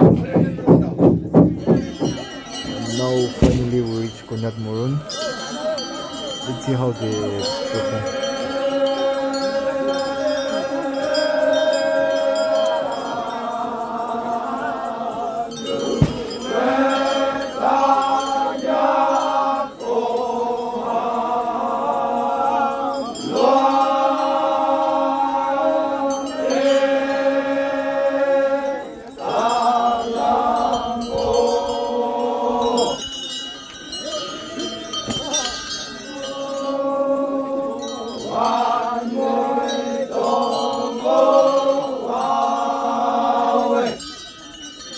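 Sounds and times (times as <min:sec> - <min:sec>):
sharp knock: 0:03.4 - 0:03.8, 0:16.0 - 0:16.3
men chanting together: 0:05.2 - 0:33.1, 0:33.9 - 0:44.1.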